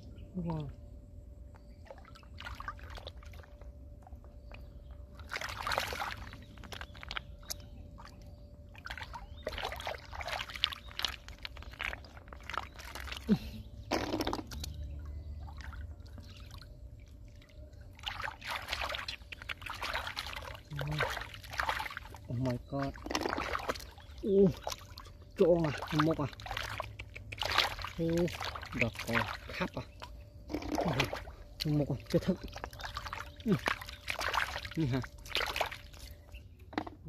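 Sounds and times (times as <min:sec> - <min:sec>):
hands splashing in muddy water: 0:05.2 - 0:08.2, 0:08.8 - 0:14.8, 0:18.0 - 0:36.2.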